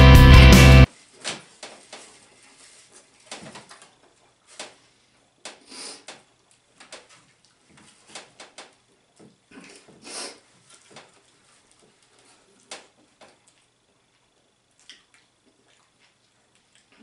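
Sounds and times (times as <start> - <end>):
rock music: 0.0 - 0.9
people chewing food: 1.9 - 17.0.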